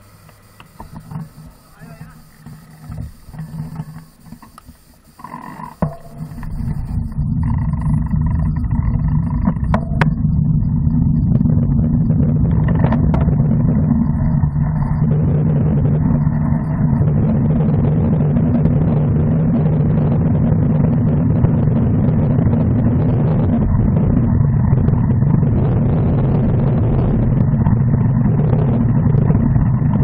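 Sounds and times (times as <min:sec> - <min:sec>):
sharp clicks: 0:00.1 - 0:08.7
wind buffeting the microphone: 0:05.9 - 0:30.0.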